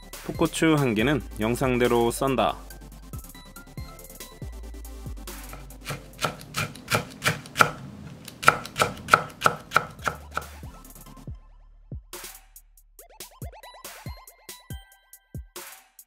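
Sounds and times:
knife chopping on wooden board: 0:05.4 - 0:10.6.

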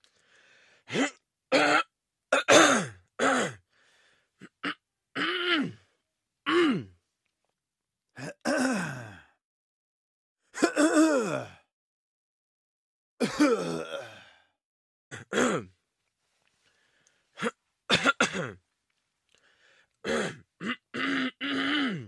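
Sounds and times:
person clearing throat: 0:00.9 - 0:03.6, 0:04.4 - 0:05.8, 0:06.5 - 0:07.0, 0:08.2 - 0:09.2, 0:10.6 - 0:11.5, 0:13.2 - 0:14.1, 0:15.1 - 0:15.7, 0:17.4 - 0:18.6, 0:20.1 - 0:22.0.

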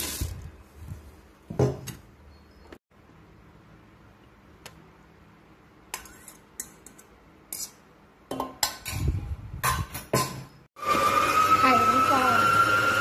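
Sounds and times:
metal bowl clinking and scraping: 0:05.9 - 0:10.5.

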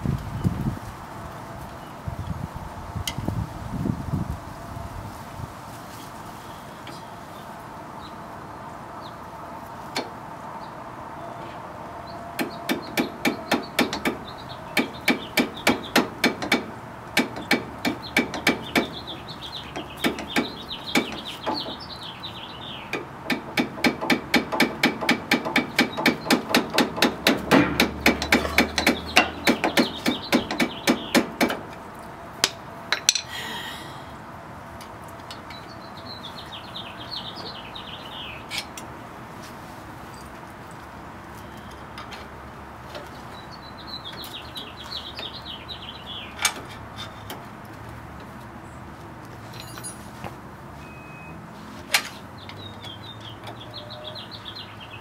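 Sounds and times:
birds chirping: 0:06.0 - 0:38.8, 0:41.2 - 0:47.4, 0:52.2 - 0:55.0
sharp metallic taps: 0:12.4 - 0:19.1, 0:22.9 - 0:31.8.

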